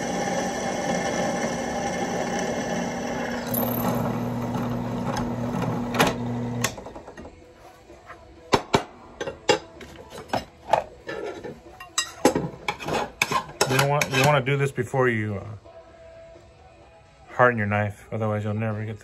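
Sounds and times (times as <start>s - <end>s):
drill press motor humming: 0.0s - 6.9s.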